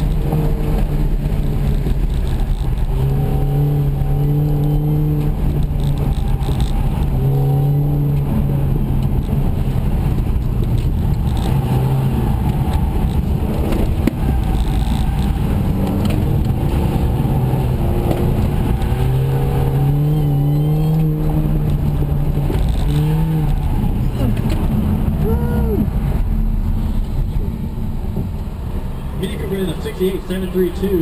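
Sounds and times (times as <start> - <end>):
car engine revving: 0.0 - 31.0.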